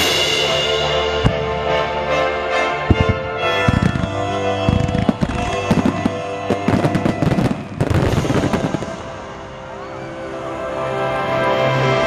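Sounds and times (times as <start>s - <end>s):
music playing: 0.0s - 12.0s
fireworks bangs and crackles: 1.2s - 1.7s, 2.8s - 9.4s.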